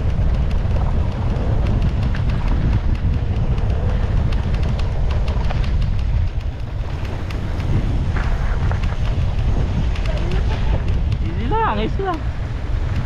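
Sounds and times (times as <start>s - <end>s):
bike clicks and rattles: 0.0s - 13.0s
tyre noise on dirt: 0.0s - 13.0s
wind buffeting microphone: 0.0s - 13.0s.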